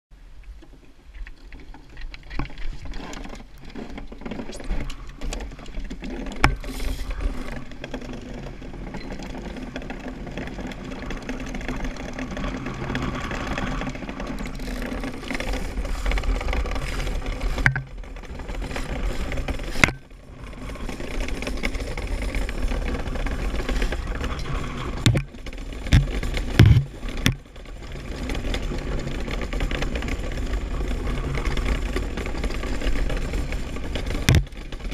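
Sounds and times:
runners rumbling over ice: 1.4s - 34.9s
sharp knocks: 25.9s - 27.4s.

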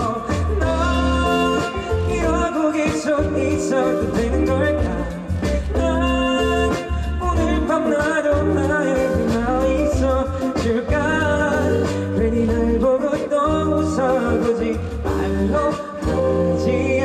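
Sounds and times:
sustained low bass: 0.0s - 2.5s, 3.2s - 7.7s, 8.4s - 12.9s
guitar accompaniment: 0.0s - 17.0s
person singing pop ballad: 0.0s - 17.0s.

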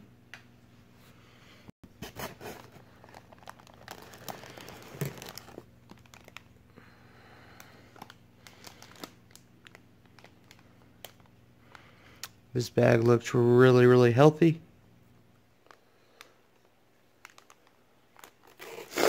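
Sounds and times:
plastic bags crinkling: 2.4s - 6.7s, 7.5s - 11.4s, 16.6s - 19.0s.

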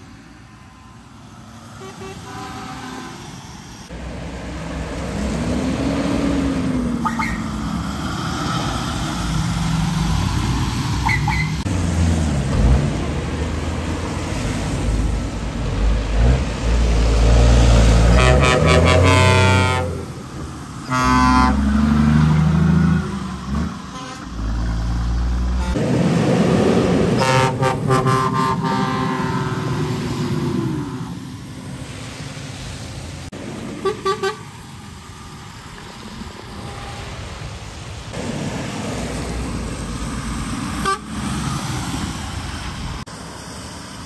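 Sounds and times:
truck diesel engines revving: 0.0s - 44.0s
truck horn blasts: 1.8s - 3.3s, 18.1s - 20.1s, 20.8s - 22.4s, 23.8s - 24.6s, 25.5s - 25.9s, 27.2s - 30.0s, 33.8s - 34.5s, 40.8s - 41.2s.

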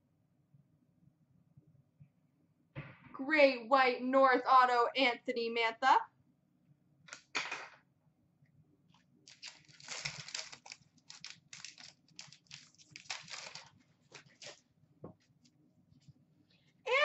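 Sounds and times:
trading cards rustling: 9.3s - 14.6s.

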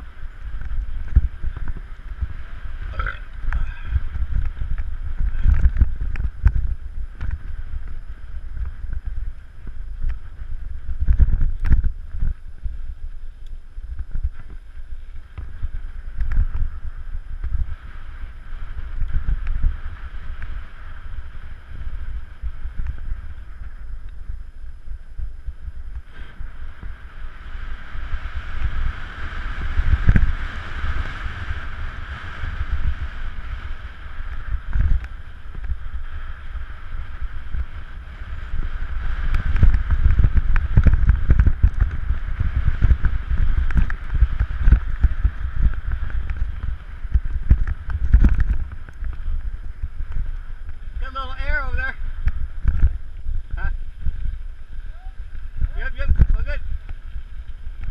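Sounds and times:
wind buffeting microphone: 0.0s - 57.9s
bike rattling and knocking: 28.6s - 54.2s.

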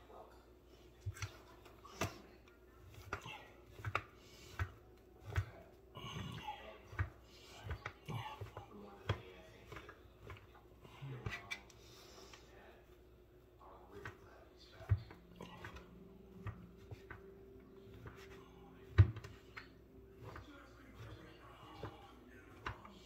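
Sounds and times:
faint voices: 13.6s - 23.0s.

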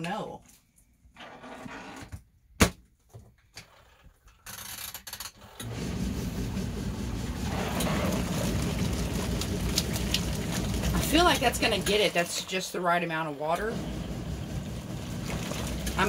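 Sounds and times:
washing machine agitating: 5.6s - 16.0s.

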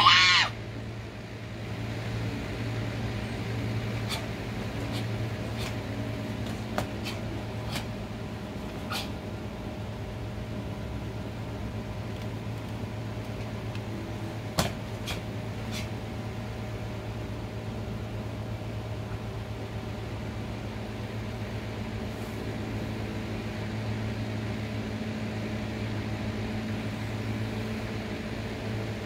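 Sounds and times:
steady low hum: 0.0s - 29.0s
sharp martial arts strike snaps: 14.6s - 15.9s.

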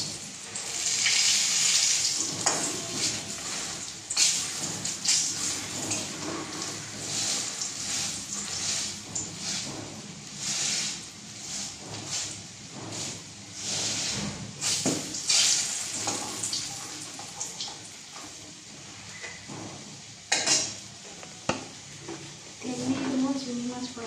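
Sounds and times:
frying sizzle: 0.0s - 24.0s
spatula scraping metal pan: 2.2s - 16.3s.

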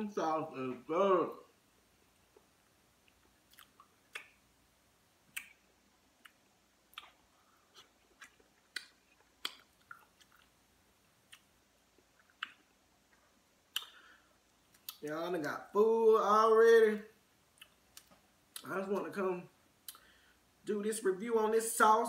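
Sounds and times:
chewing clicks and mouth smacks: 3.0s - 4.4s, 6.2s - 10.6s, 11.3s - 14.0s, 14.7s - 15.1s, 17.5s - 18.7s.

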